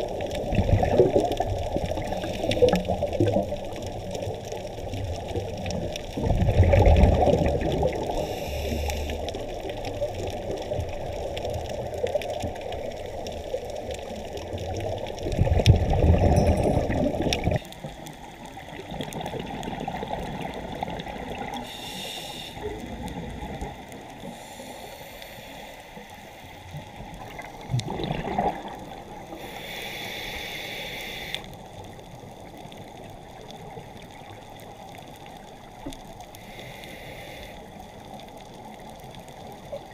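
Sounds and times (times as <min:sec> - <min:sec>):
exhaled bubbles gurgling: 0:00.0 - 0:24.6, 0:26.6 - 0:30.2
inhaled air hissing: 0:08.1 - 0:09.4, 0:21.6 - 0:22.8, 0:24.2 - 0:26.4, 0:29.3 - 0:31.6, 0:36.4 - 0:37.7.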